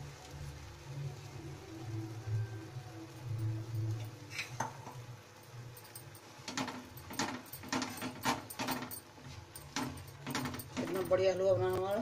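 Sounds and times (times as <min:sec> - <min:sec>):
wooden spatula scraping a pan: 0:04.2 - 0:04.8.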